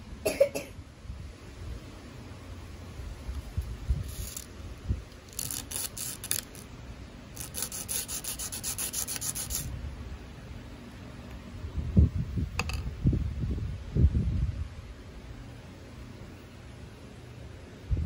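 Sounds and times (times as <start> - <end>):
part scraping on sandpaper: 4.0 - 4.5, 5.3 - 6.7, 7.4 - 9.7.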